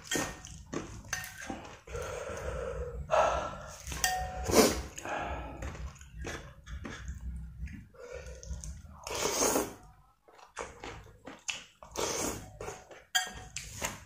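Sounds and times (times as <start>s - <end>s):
man breathing heavily while chewing: 1.4s - 9.2s.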